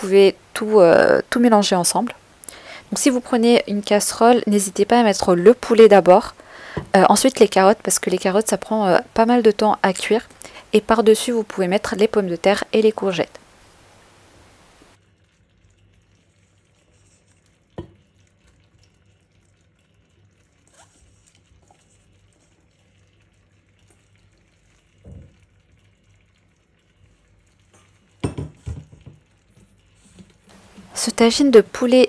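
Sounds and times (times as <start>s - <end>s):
faint hiss: 0.0s - 4.8s, 10.0s - 15.0s.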